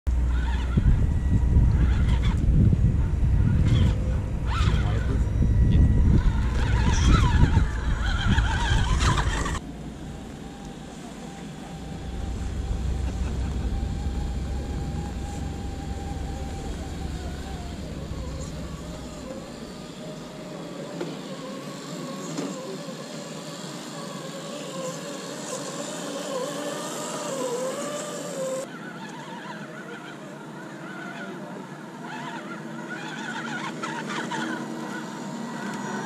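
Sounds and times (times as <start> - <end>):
wind on microphone: 0.1 - 20.2
electric motor whining: 0.1 - 36.0.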